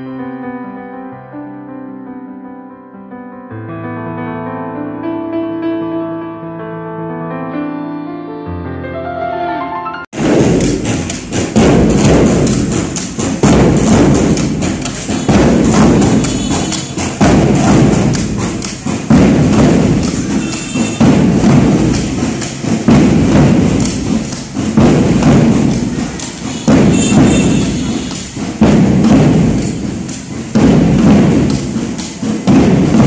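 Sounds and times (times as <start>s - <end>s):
piano music: 0.0s - 10.2s
drum band playing: 10.1s - 33.0s.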